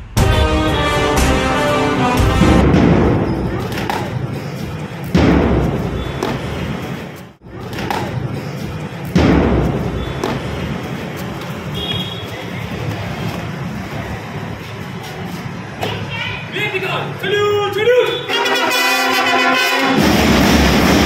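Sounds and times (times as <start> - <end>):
steady background noise: 0.8 - 21.0
loud booming thuds: 2.4 - 4.2, 5.0 - 6.6, 9.1 - 10.7.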